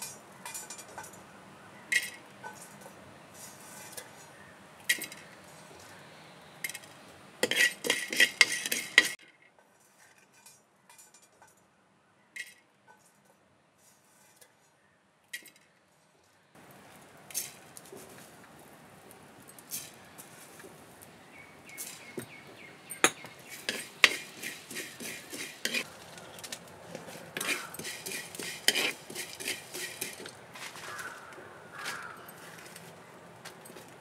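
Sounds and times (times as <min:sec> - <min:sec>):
clinks and rattles: 0:00.0 - 0:01.3, 0:01.9 - 0:05.9, 0:06.6 - 0:11.6, 0:33.4 - 0:34.0
low steady hiss: 0:00.0 - 0:30.8
spoon scraping seeds in a pan: 0:01.9 - 0:06.0, 0:06.6 - 0:09.2, 0:13.8 - 0:14.6, 0:17.3 - 0:18.3, 0:19.6 - 0:20.7, 0:21.7 - 0:22.2, 0:22.9 - 0:32.8.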